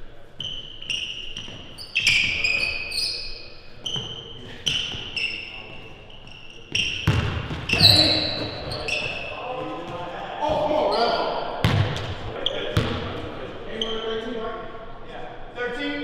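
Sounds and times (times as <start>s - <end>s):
shoes squeaking on hardwood: 0.4s - 10.0s
basketball dribbling thuds: 6.7s - 10.8s, 11.6s - 13.3s.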